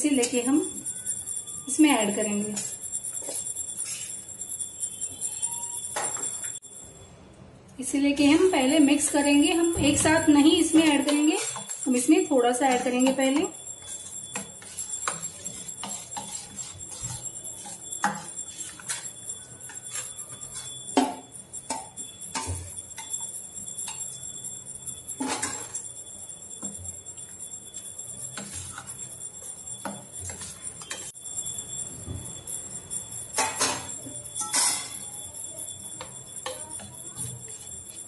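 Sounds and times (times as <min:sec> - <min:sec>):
bangles jingling: 0:02.3 - 0:06.6
spoon clinking on steel bowl: 0:08.4 - 0:31.1, 0:33.2 - 0:38.0.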